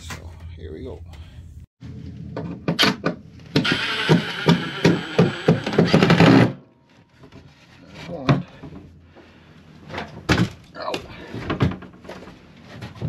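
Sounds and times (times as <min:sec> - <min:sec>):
power driver driving screw: 0:03.6 - 0:06.6.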